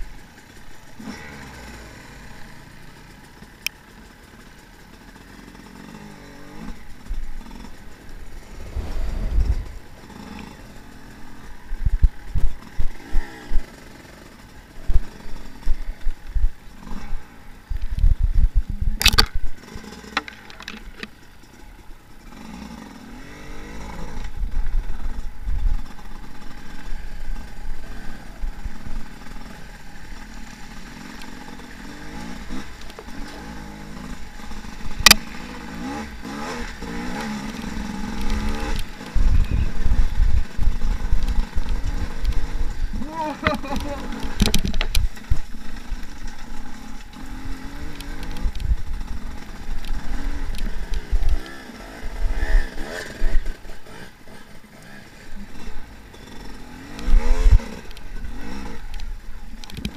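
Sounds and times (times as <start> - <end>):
dirt bike engine revving: 0.0 - 59.9
heavy low thumps: 8.1 - 10.8
sharp cracks: 19.0 - 21.2, 32.4 - 39.4.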